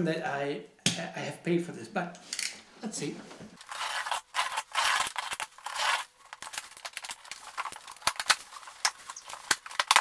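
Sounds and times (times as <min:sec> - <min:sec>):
packaging rustle: 0:03.6 - 0:10.0.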